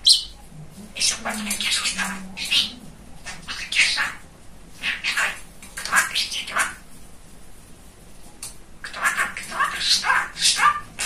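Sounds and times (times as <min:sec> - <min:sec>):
budgerigar chattering: 0:08.8 - 0:11.0.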